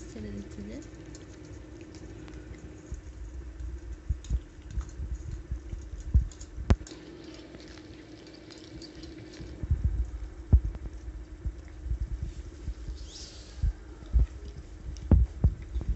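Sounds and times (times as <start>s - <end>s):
cats chewing wetly: 0.0s - 15.9s
steady low hum: 0.0s - 15.9s
teeth clicking on steel plate: 0.4s - 3.0s.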